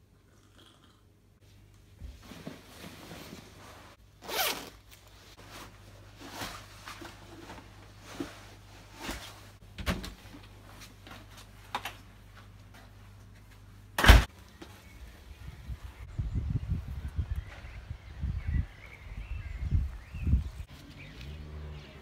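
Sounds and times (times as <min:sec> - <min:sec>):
clothing rustling: 0:01.4 - 0:09.6
jacket zip pulled: 0:04.2 - 0:04.8.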